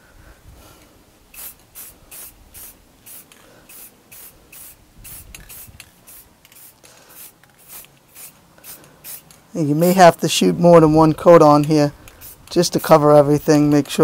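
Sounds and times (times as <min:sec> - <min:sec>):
aerosol spray hissing bursts: 0:01.3 - 0:10.0, 0:12.1 - 0:13.0.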